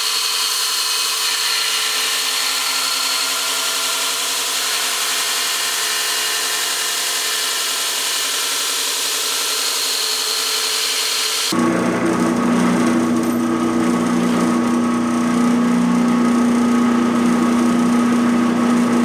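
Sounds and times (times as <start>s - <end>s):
belt grinder grinding steel: 0.0s - 11.6s.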